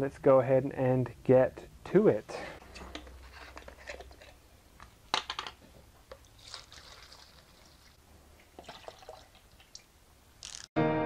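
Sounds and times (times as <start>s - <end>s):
paint trickling into a tub: 6.1s - 9.9s.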